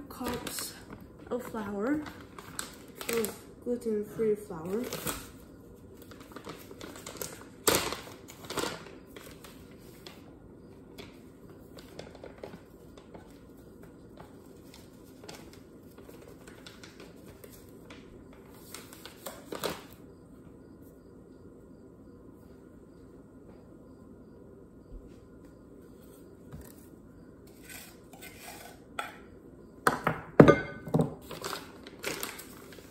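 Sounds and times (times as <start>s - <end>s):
plastic bag crinkling: 0.0s - 10.3s, 11.0s - 20.0s, 31.2s - 32.9s.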